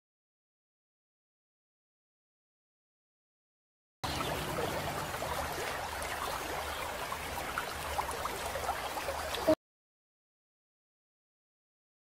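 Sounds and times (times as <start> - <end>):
water trickling and bubbling: 4.0 - 9.6.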